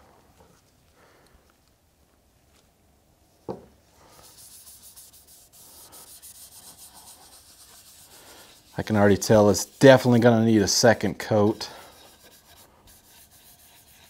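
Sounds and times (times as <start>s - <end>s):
rag rubbing on wood: 4.2s - 14.0s.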